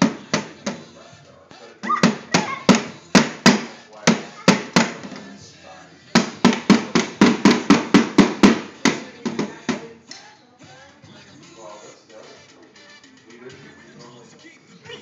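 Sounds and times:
toy drum hits: 0.0s - 0.8s, 1.8s - 5.2s, 6.2s - 9.9s.

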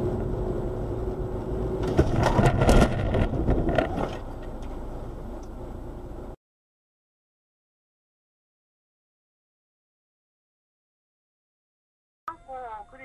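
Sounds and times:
road noise inside car: 0.0s - 6.4s
loud crunching car impacts: 1.8s - 4.3s.

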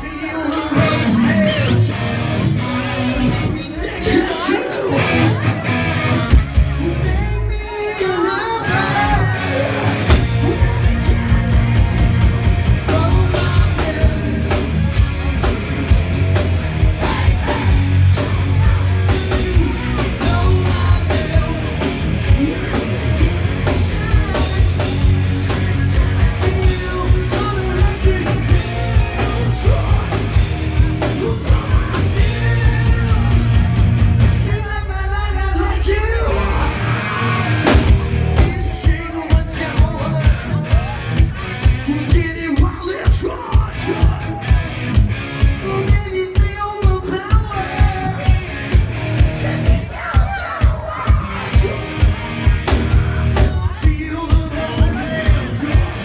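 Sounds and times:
electric guitars: 0.0s - 56.0s
singer belting and shouting: 0.0s - 56.0s
steady drumbeat: 9.1s - 36.8s, 37.5s - 56.0s.

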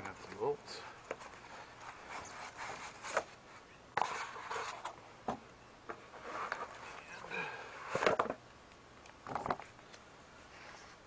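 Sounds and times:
cardboard and foam rustling: 0.0s - 5.0s, 5.9s - 8.4s.

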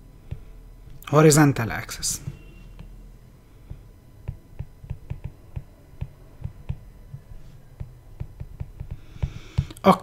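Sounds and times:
stylus tapping on tablet screen: 3.7s - 6.8s, 7.8s - 9.8s.

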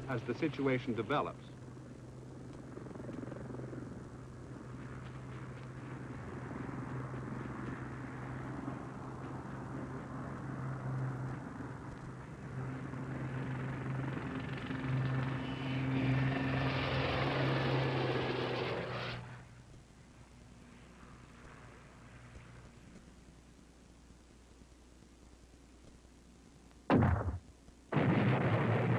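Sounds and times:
helicopter rotor and engine hum: 0.0s - 23.6s.

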